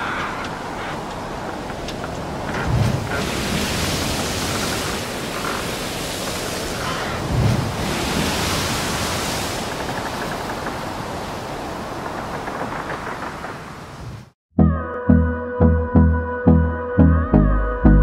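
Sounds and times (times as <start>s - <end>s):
steady rushing noise: 0.0s - 14.3s.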